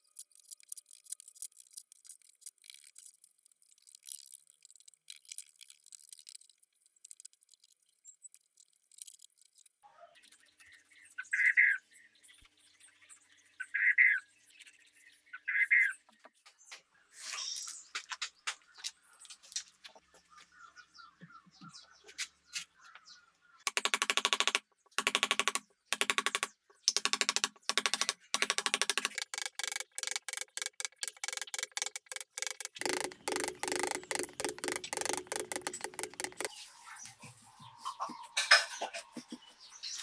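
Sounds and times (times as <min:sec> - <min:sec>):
power tool rattling click: 0:23.7 - 0:36.5.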